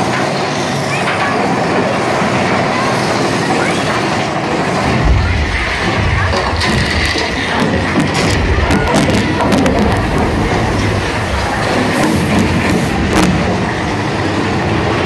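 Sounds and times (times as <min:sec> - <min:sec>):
roller coaster wheels rattling on rails: 0:00.0 - 0:15.0
deep rumble: 0:04.4 - 0:15.0.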